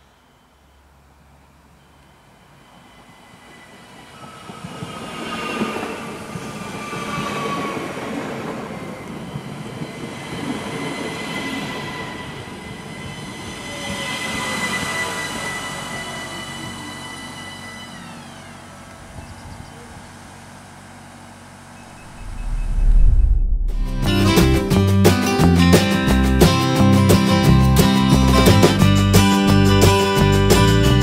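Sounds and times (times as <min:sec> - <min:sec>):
steady high squeal: 0:01.7 - 0:19.4, 0:21.7 - 0:24.7
train motor whine: 0:01.7 - 0:24.5.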